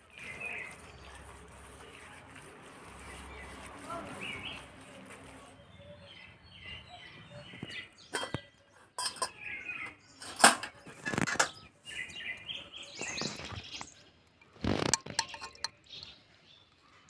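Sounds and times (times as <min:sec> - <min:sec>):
birds chirping faintly: 0:00.0 - 0:17.0
metal pots clinking: 0:08.1 - 0:11.7, 0:14.4 - 0:15.9.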